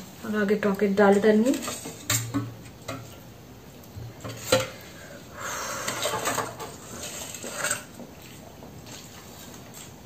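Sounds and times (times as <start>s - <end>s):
spoon scraping: 5.8s - 9.2s.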